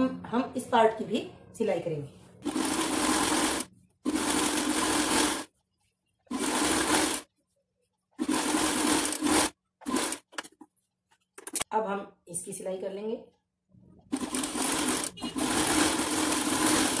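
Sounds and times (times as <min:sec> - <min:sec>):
sewing machine stitching: 0:02.4 - 0:05.5, 0:06.3 - 0:07.3, 0:08.2 - 0:10.4, 0:14.1 - 0:17.0.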